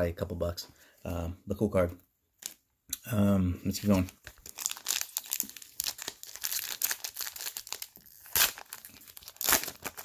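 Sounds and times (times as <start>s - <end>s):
plastic wrapper crinkling and tearing: 2.4s - 2.6s, 3.7s - 10.0s.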